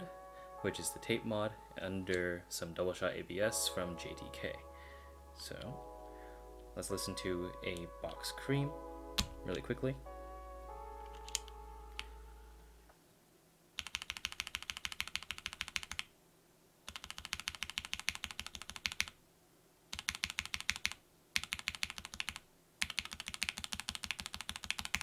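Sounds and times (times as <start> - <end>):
musical tone: 0.0 - 12.9
mechanical keyboard typing: 11.1 - 11.5, 13.8 - 16.1, 16.9 - 19.2, 19.9 - 25.0.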